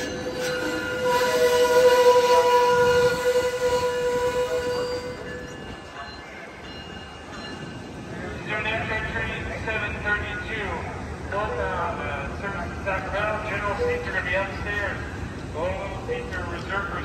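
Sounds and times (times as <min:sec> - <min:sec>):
train brakes squealing: 0:00.0 - 0:08.0
train low rumble: 0:00.0 - 0:17.0.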